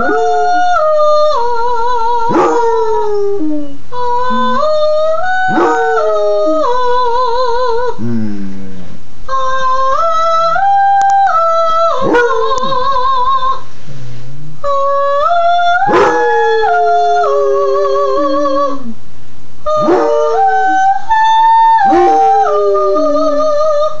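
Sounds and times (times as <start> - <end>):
woman singing: 0.0 - 3.4, 4.0 - 8.0, 9.3 - 13.7, 14.6 - 19.0
dog howling: 0.0 - 7.9, 14.7 - 18.9, 19.7 - 24.0.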